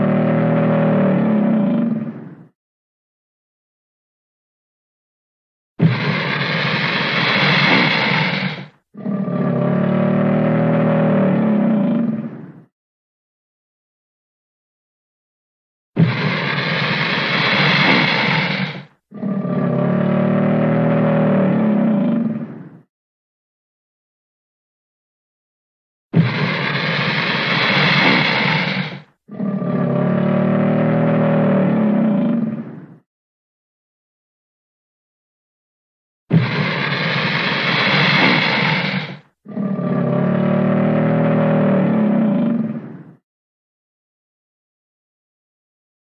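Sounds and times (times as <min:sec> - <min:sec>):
alligator bellowing: 0:00.0 - 0:02.5, 0:05.8 - 0:12.6, 0:16.0 - 0:22.8, 0:26.2 - 0:33.0, 0:36.3 - 0:43.2.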